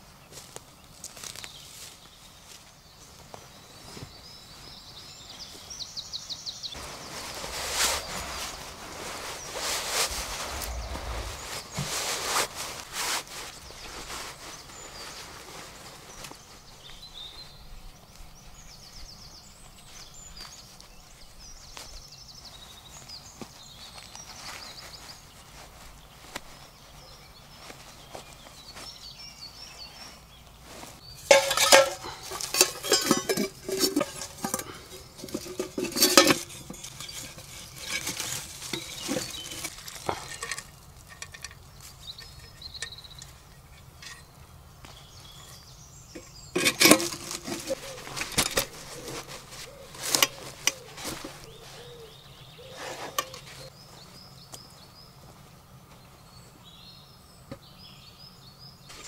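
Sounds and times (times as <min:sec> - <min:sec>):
faint birdsong: 0:00.0 - 0:59.0
metal pots clinking: 0:31.2 - 0:44.3, 0:46.1 - 0:51.6, 0:53.1 - 0:53.5.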